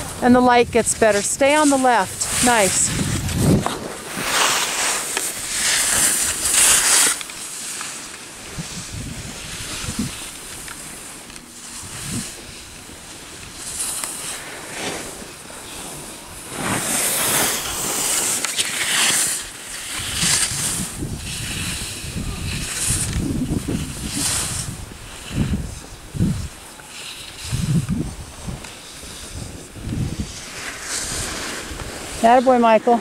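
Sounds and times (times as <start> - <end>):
wind on microphone: 0.0 - 6.8, 8.4 - 10.9, 11.6 - 14.4, 19.2 - 33.0
skis scraping over snow: 0.0 - 33.0.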